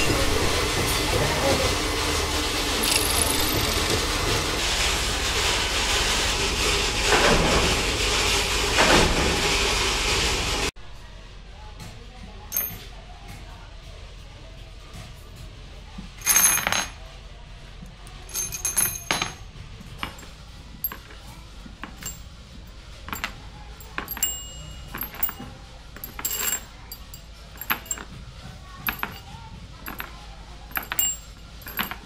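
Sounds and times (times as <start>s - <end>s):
metal padlock parts clinking: 18.1s - 21.2s, 21.8s - 22.3s, 23.1s - 28.1s, 28.9s - 29.3s, 29.9s - 32.0s.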